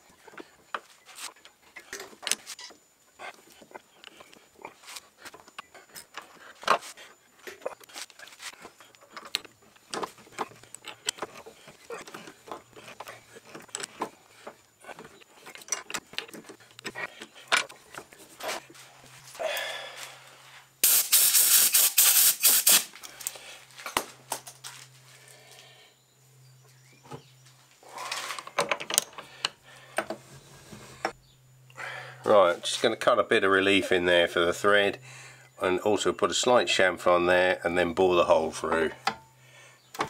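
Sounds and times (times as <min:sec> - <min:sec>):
small metallic clicks and scrapes: 0:00.2 - 0:18.6
loud hiss: 0:20.8 - 0:23.0.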